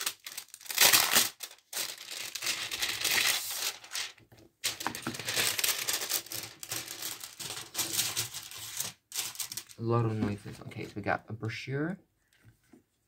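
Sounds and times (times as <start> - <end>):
packaging crinkling: 0.0 - 9.8.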